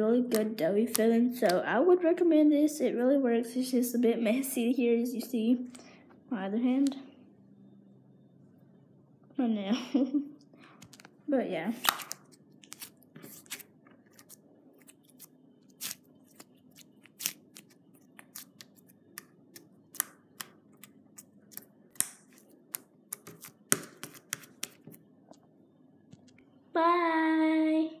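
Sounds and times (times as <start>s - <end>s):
slime squished by fingers: 0.3s - 1.6s, 11.8s - 24.9s
sticky clicks and pops: 17.1s - 24.9s.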